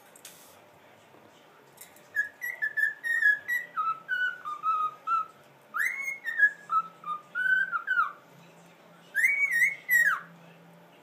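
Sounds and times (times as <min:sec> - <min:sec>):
cockatiel whistling: 0:02.1 - 0:08.2, 0:09.2 - 0:10.3.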